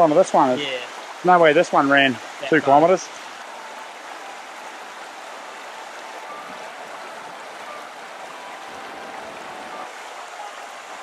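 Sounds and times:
stream rushing: 0:00.0 - 0:11.0.

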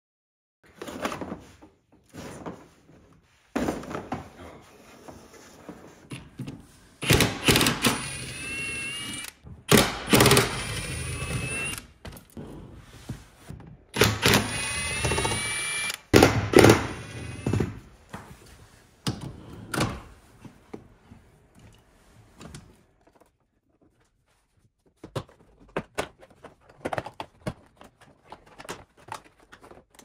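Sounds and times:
impact driver motor whine: 0:07.4 - 0:09.4, 0:10.1 - 0:11.8, 0:14.1 - 0:17.6.

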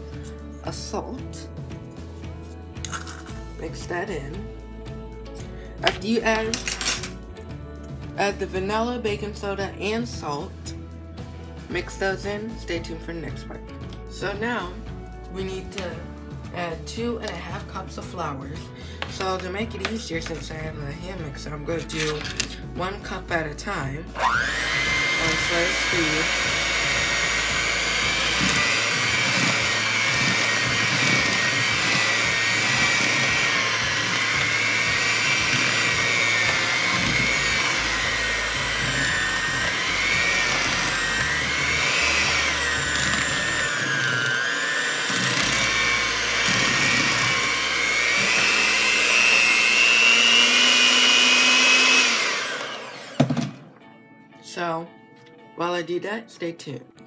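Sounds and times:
electric hand mixer whining: 0:21.2 - 0:23.0, 0:24.0 - 0:53.6.

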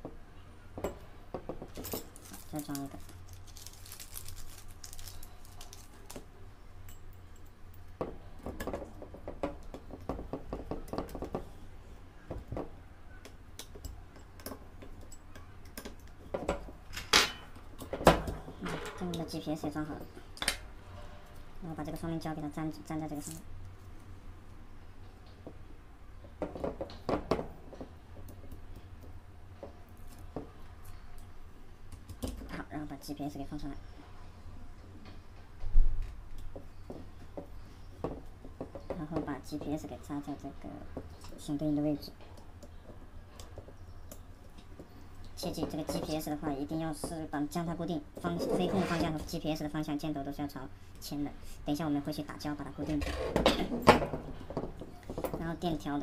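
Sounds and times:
tape rustling and clicking: 0:01.7 - 0:06.3.

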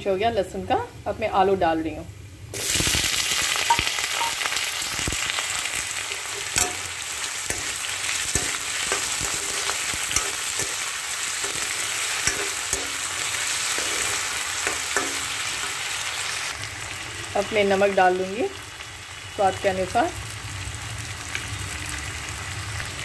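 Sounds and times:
potatoes sizzling in oil: 0:02.5 - 0:23.0
spatula scraping pan: 0:05.8 - 0:16.0.

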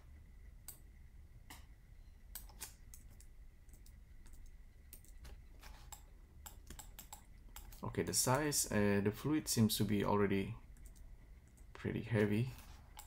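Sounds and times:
mouse and keyboard clicks: 0:02.4 - 0:07.8.

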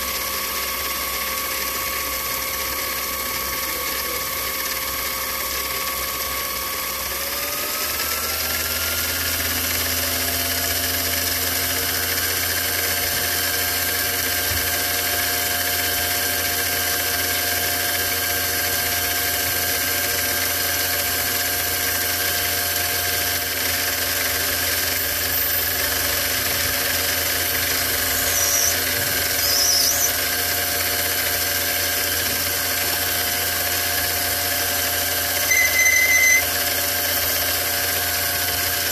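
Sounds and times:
metal lathe whine: 0:00.0 - 0:38.9
high scraping sounds: 0:27.4 - 0:30.2.

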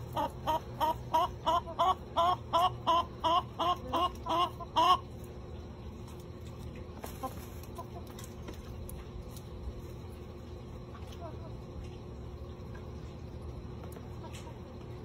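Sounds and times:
hens clucking: 0:00.0 - 0:05.3, 0:06.9 - 0:08.5.

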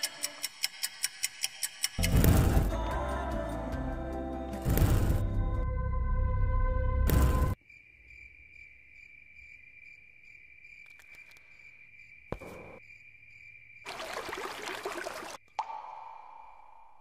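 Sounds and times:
crickets chirping: 0:07.6 - 0:17.0
water gushing from tap: 0:13.9 - 0:15.4.

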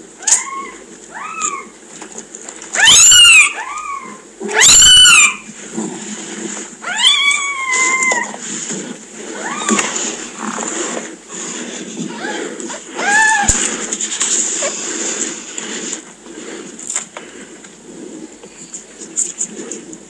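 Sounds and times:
kittens mewing: 0:00.2 - 0:01.7, 0:02.8 - 0:05.5, 0:06.8 - 0:08.4, 0:09.4 - 0:10.0, 0:12.1 - 0:13.9.

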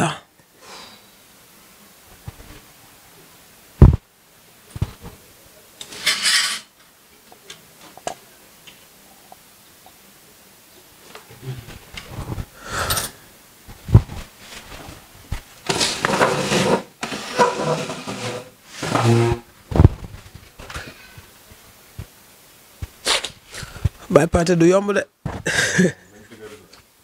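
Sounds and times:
man sobbing: 0:25.4 - 0:26.2.

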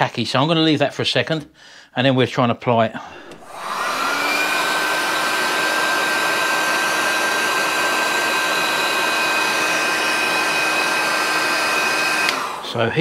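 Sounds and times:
heat gun fan whine: 0:03.2 - 0:13.0.

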